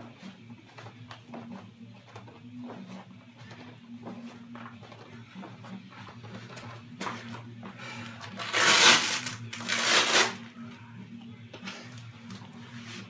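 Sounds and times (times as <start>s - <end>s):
velcro ripping open: 8.4s - 10.4s.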